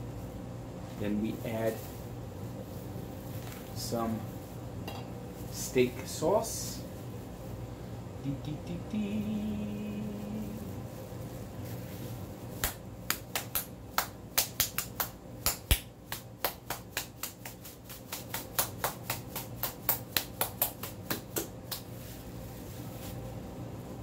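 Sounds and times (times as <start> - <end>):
hand slapping sauce bottle: 12.6 - 22.0.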